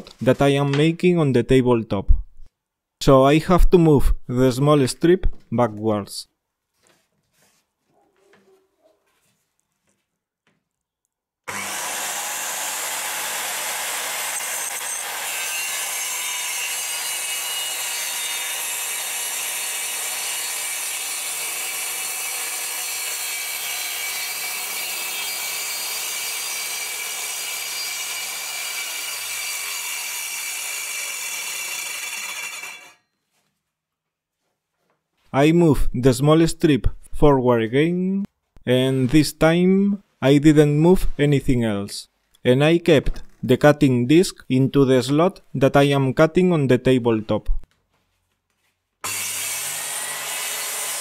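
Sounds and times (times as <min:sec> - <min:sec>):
circular saw cutting wood: 0:11.5 - 0:33.0, 0:49.0 - 0:51.0.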